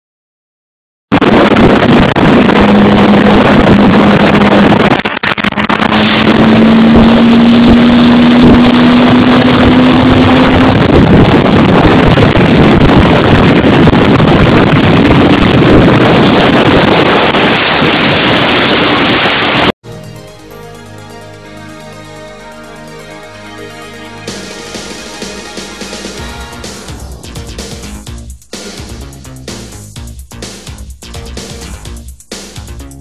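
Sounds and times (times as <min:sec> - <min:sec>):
wind rush on microphone: 0:01.1 - 0:19.7
vehicle engine droning: 0:02.2 - 0:13.2.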